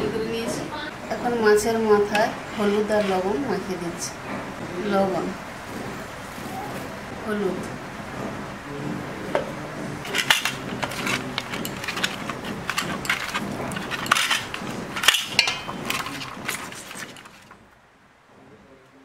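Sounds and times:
hands mixing fish heads: 0:10.0 - 0:17.7.

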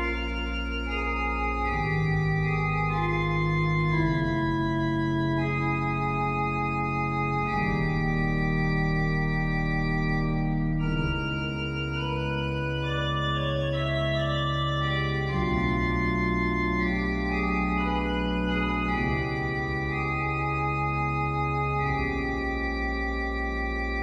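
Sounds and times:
pipe organ playing chords: 0:00.0 - 0:24.0.

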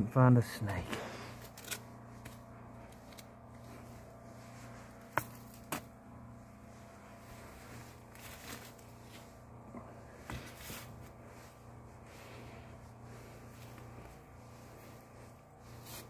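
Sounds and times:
steady low hum: 0:00.0 - 0:16.0
stick tapping and rustling insulation: 0:00.7 - 0:06.0, 0:07.8 - 0:11.9.

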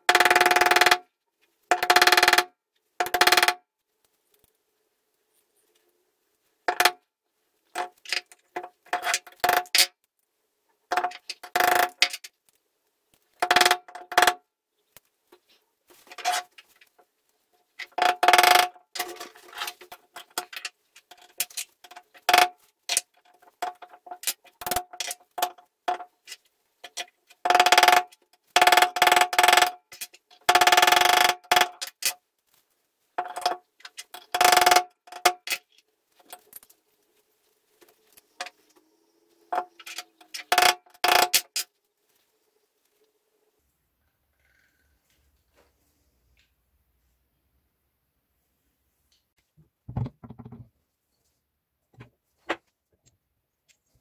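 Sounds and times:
small metal parts clicking: 0:06.7 - 0:07.0, 0:07.8 - 0:09.9, 0:10.9 - 0:12.3, 0:17.8 - 0:32.2, 0:33.2 - 0:36.8, 0:39.5 - 0:41.7.

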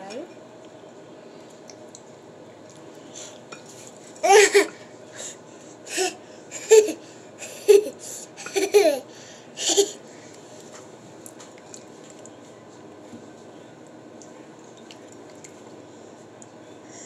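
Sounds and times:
toddler laughing: 0:04.2 - 0:04.8, 0:06.0 - 0:10.0.

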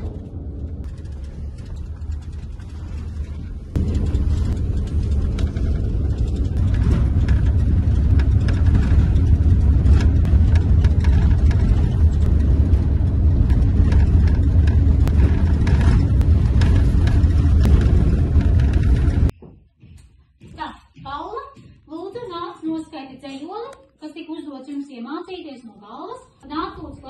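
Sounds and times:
bus engine and road rumble: 0:00.0 - 0:19.4.

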